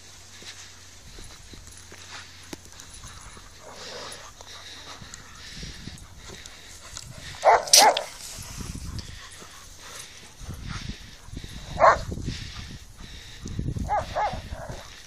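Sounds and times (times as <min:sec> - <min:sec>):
rustling in grass: 0:00.0 - 0:11.8
dog barking: 0:07.4 - 0:08.1, 0:11.7 - 0:12.1, 0:13.9 - 0:14.8.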